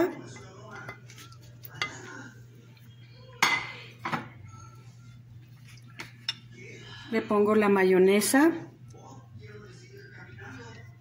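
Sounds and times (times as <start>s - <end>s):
dishware clinking and knocking: 3.4s - 4.3s.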